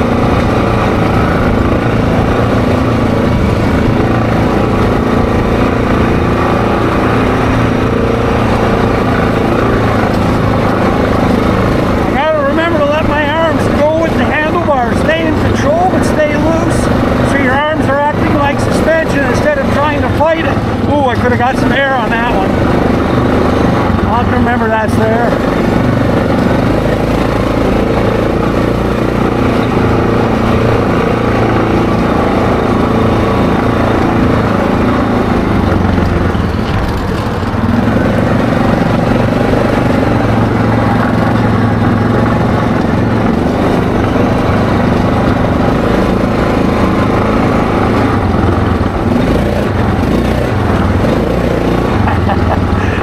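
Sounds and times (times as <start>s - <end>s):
quad bike engine running: 0.0s - 53.0s.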